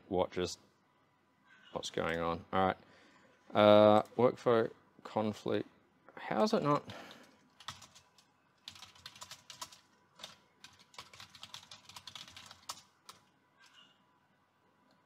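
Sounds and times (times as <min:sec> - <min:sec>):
typing on computer keyboard: 0:07.1 - 0:13.8.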